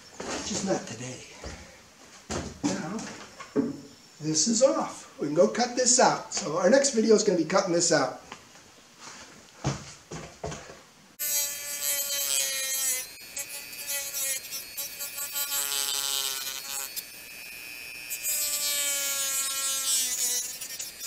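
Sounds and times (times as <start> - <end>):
rotary tool cutting plastic: 11.2 - 21.0.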